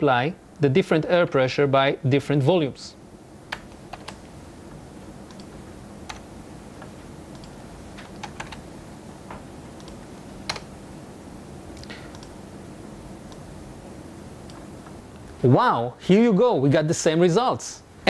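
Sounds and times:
steady low hum: 0.0s - 18.0s
keyboard keystrokes: 3.5s - 4.2s, 7.3s - 8.6s, 9.8s - 10.7s.

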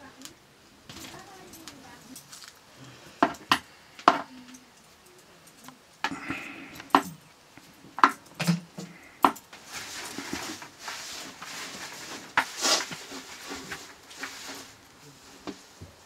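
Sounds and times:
leaves rustling and scraping: 0.9s - 3.1s, 8.9s - 16.0s.

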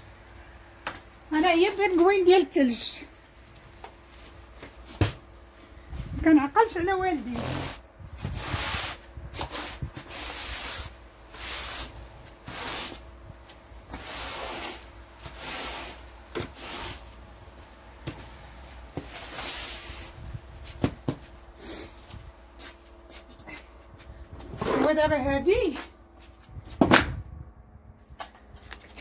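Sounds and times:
rough scraping strokes of a tool: 7.4s - 13.0s, 13.9s - 17.2s.

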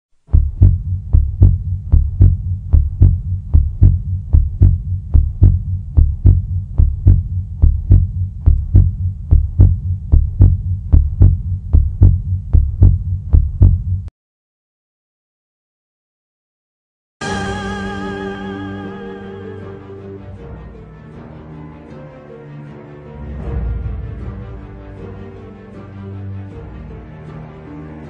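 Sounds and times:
heartbeat double thump: 0.3s - 14.1s
low hum: 0.3s - 14.1s.

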